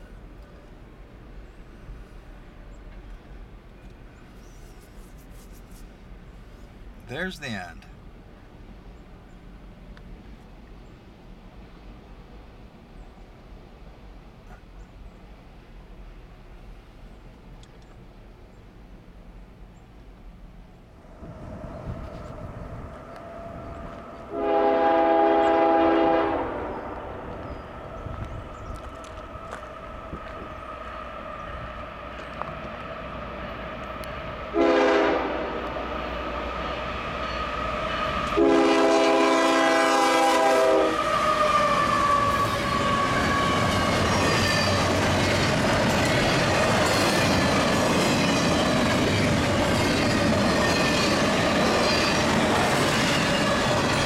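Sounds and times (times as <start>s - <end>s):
locomotive air horn blasts: 24.3s - 26.9s, 34.5s - 35.6s, 38.4s - 43.6s
train wheels clattering on rails: 41.0s - 54.0s.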